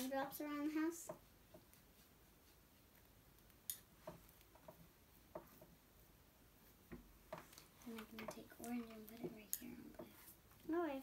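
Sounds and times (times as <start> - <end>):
faint small taps and clicks: 3.4 - 5.8, 6.8 - 10.7.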